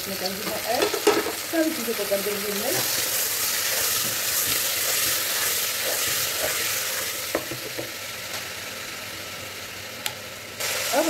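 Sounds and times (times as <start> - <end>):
onions sizzling in hot oil: 0.0 - 11.0
spatula stirring in pot: 2.8 - 7.5.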